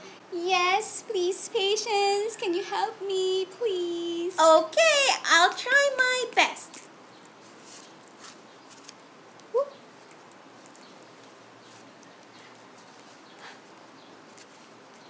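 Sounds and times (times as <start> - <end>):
cloth rustling: 7.4 - 15.0.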